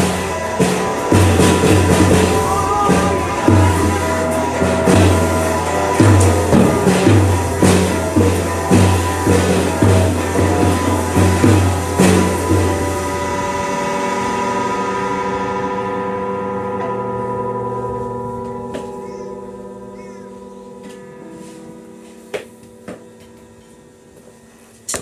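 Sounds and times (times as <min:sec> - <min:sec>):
drum and cymbal hit: 0:00.0 - 0:19.4
rock band final chord ringing: 0:00.0 - 0:23.7.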